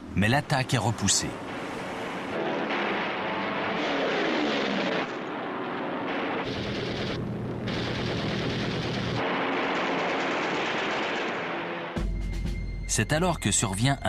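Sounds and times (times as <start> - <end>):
low engine drone: 0.0 - 12.8
propeller aircraft engine passing: 1.4 - 11.9
rapid machine-gun fire: 1.5 - 12.0.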